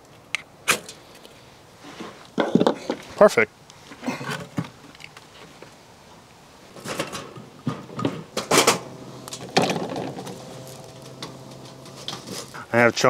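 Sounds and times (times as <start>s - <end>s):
wooden sticks clattering into stove: 6.8s - 12.6s.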